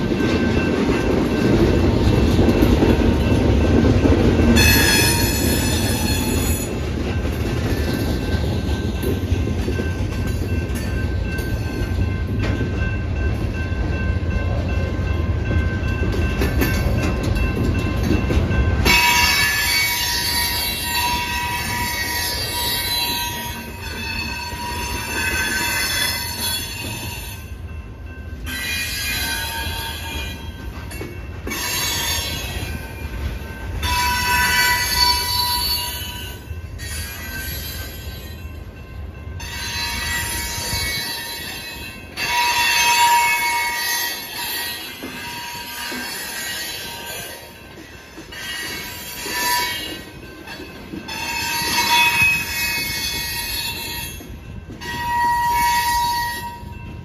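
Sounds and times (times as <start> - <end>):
freight train wheels rumbling on rail: 0.0 - 57.0.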